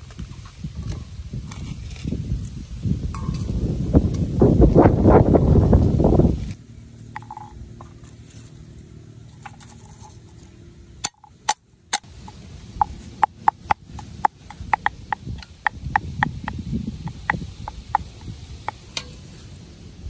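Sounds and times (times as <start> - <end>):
knife chopping on wooden block: 13.2 - 18.8.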